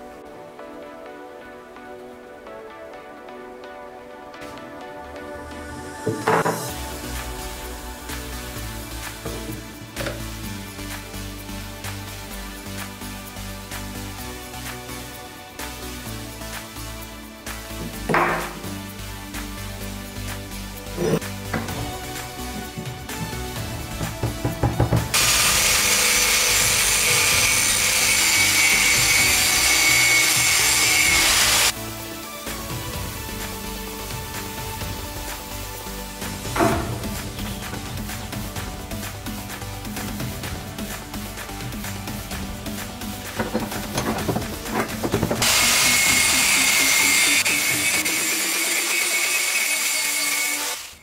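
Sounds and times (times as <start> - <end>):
angle grinder grinding metal: 20.9 - 31.8, 43.3 - 51.0.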